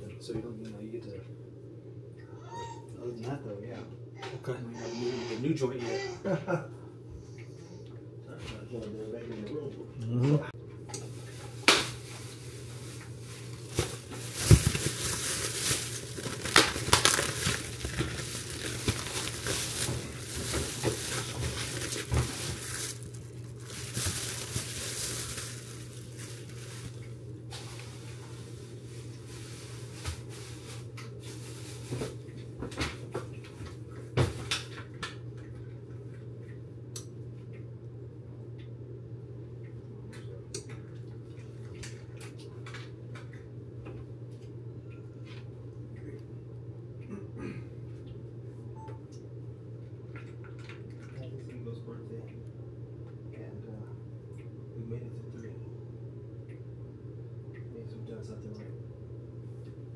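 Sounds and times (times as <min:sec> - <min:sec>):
steady low hum: 0:00.0 - 0:59.9
plastic packaging crinkling: 0:11.1 - 0:28.2.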